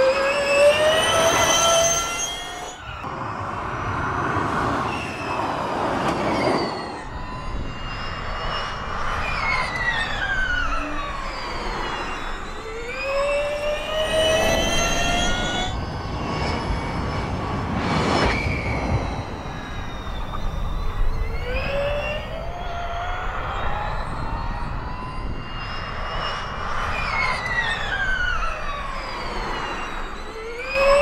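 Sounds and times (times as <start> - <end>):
electric race car whining: 0.0 - 31.0
tyre and wind noise: 2.9 - 13.2, 14.0 - 22.4.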